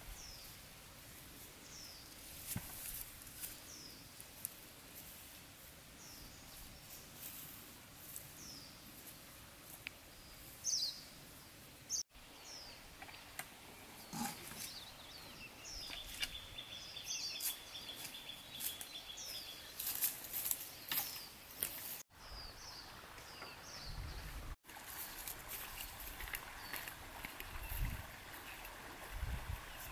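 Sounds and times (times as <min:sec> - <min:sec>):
rustles and scuffs: 0:01.2 - 0:05.6, 0:06.4 - 0:10.7, 0:17.1 - 0:22.0
bird chirping: 0:11.9 - 0:21.4.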